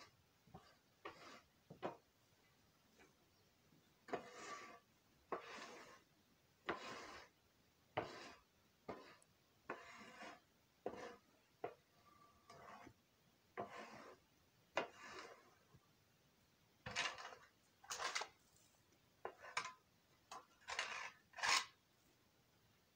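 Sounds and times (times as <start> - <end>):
shovel scraping floor: 4.1 - 6.0, 14.8 - 15.5, 16.8 - 18.3, 20.4 - 21.8.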